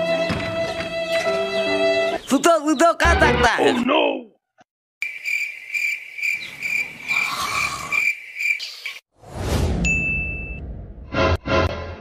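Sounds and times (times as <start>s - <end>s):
cricket chirping: 5.0s - 9.0s.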